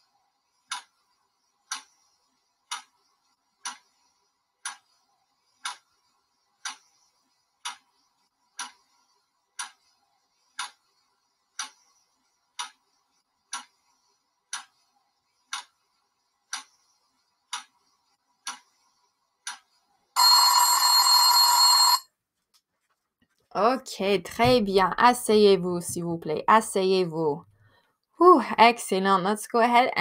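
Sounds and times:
timer ticking: 0.7 - 1.0, 2.7 - 3.0, 3.6 - 5.0, 5.6 - 9.9, 10.5 - 14.8, 15.5 - 15.8, 16.5 - 16.9, 17.5 - 18.7
timer alarm ringing: 20.2 - 22.1.

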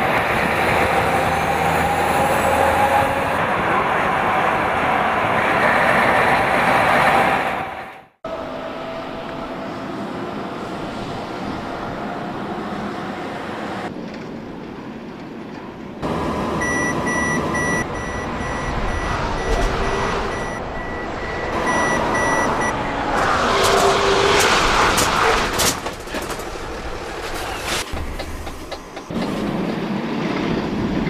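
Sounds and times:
high electronic warning beeps: 16.6 - 22.8.

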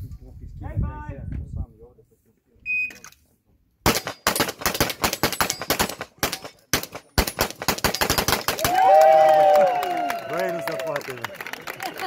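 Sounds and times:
rapid pistol fire: 3.8 - 8.8.

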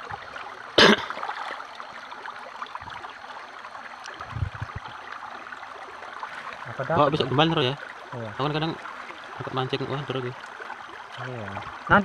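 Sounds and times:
river water flowing: 0.0 - 12.0
low dull thumps: 4.3 - 5.0.

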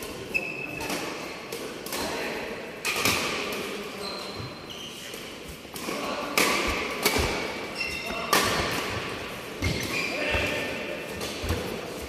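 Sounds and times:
shoes squeaking on court floor: 0.0 - 1.2, 3.6 - 5.7, 7.1 - 12.0
rackets striking shuttlecock: 2.8 - 3.8, 5.1 - 10.5.

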